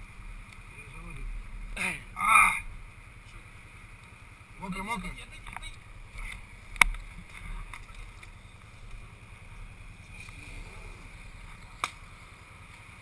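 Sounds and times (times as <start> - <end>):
atv engine idling: 0.0 - 13.0
sharp click: 11.8 - 12.0.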